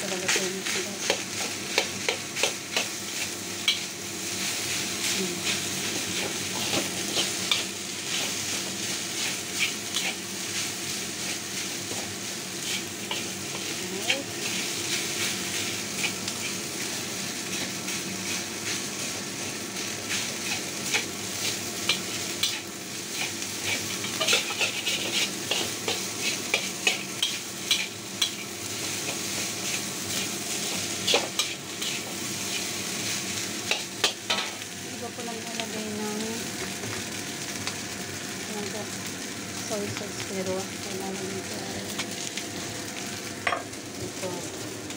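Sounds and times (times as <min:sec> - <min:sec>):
rice sizzling in a wok: 0:00.0 - 0:44.9
metal spatula scraping wok: 0:09.2 - 0:10.2, 0:20.2 - 0:28.4, 0:29.1 - 0:32.7.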